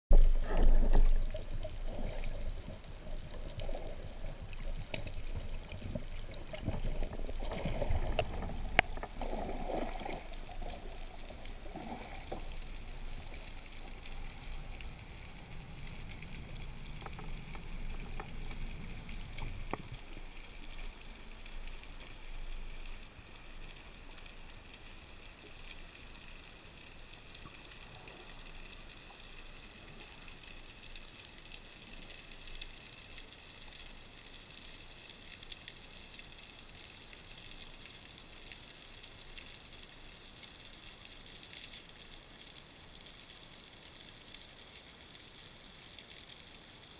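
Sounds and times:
sharp underwater clicks: 0.1s - 22.2s
muffled water swishing underwater: 0.1s - 46.9s.

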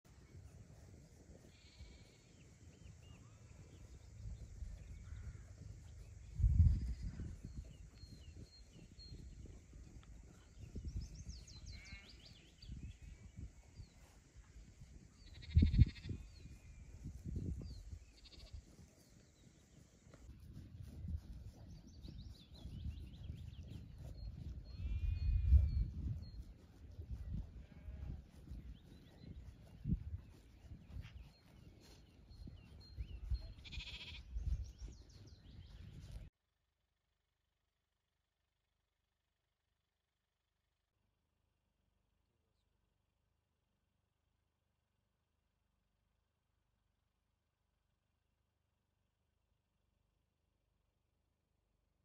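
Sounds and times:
wind rumble on microphone: 0.1s - 36.3s
sheep and lambs bleating: 1.5s - 2.1s, 11.7s - 12.2s, 15.2s - 16.4s, 18.1s - 18.6s, 24.7s - 25.8s, 27.6s - 28.2s, 33.3s - 34.4s.

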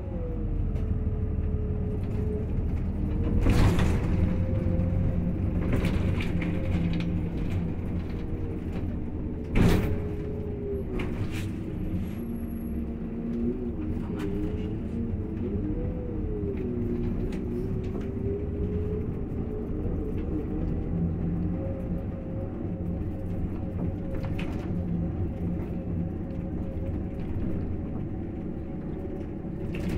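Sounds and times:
bus diesel engine running: 0.0s - 29.9s
road noise: 0.0s - 29.9s.

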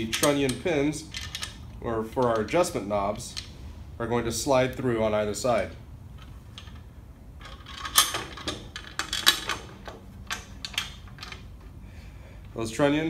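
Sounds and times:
metal clanks and knocks: 6.2s - 11.6s.

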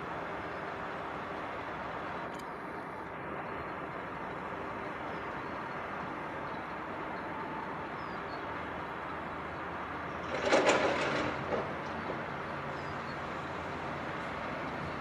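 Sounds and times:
loud clatter: 10.2s - 11.8s.

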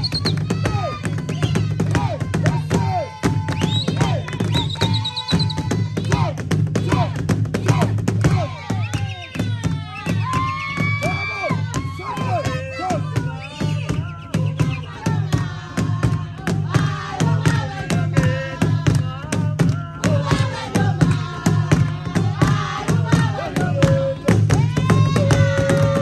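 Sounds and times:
drums beating fast rhythm: 0.0s - 26.0s
group singing and chanting: 0.0s - 26.0s.

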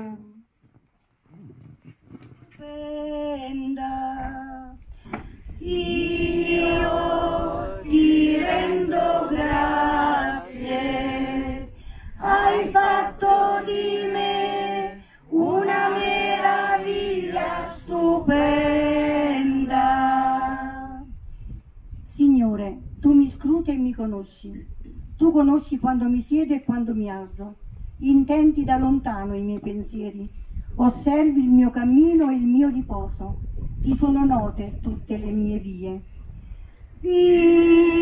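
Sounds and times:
choir singing: 5.6s - 21.0s.

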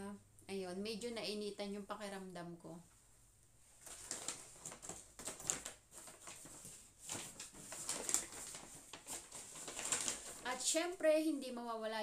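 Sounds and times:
shopping bags rustling: 3.8s - 10.7s.

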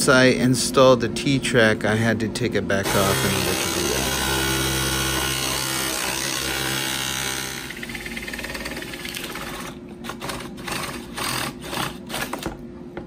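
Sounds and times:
drill boring into plywood: 2.8s - 12.5s.

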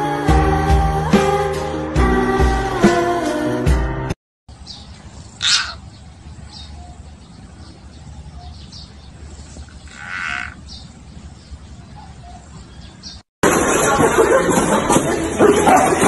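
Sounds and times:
animal cries: 5.4s - 5.8s, 9.8s - 10.6s.

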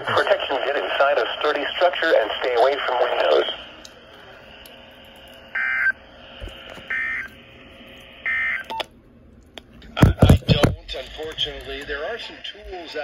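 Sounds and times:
faint radio hiss: 0.0s - 4.9s.

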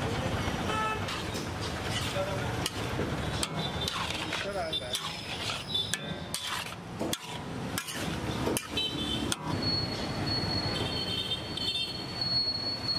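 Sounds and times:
metal spatula clanking on wok: 1.1s - 9.6s
metal scraping squeal: 3.4s - 11.2s.

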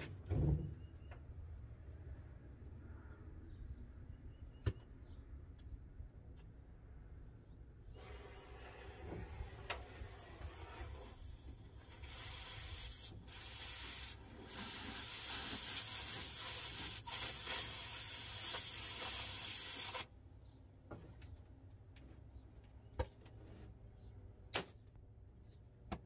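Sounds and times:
cutting torch hissing: 8.0s - 20.1s.

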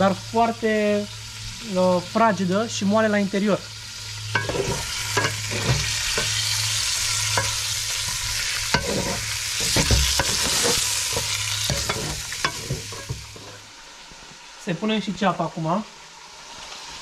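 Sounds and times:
meat sizzling in lard: 0.0s - 17.0s
utensil scraping a pot: 4.3s - 13.7s.

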